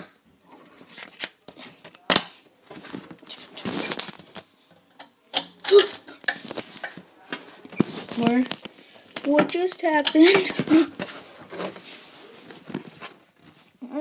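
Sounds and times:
paper rustling: 0:00.6 - 0:04.5, 0:06.4 - 0:09.4, 0:10.4 - 0:13.8.

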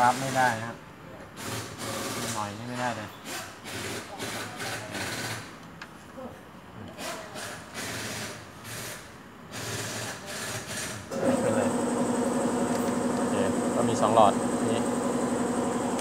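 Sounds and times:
machine hum with high whine: 0:11.1 - 0:16.0.

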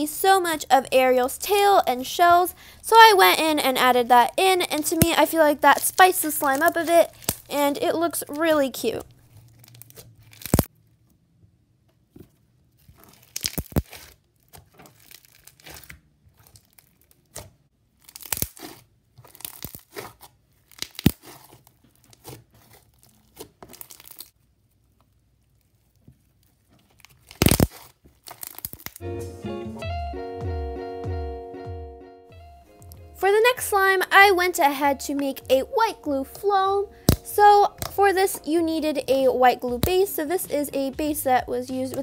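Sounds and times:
sticky slime squeezing: 0:04.7 - 0:07.6, 0:09.3 - 0:10.7, 0:12.8 - 0:29.0.

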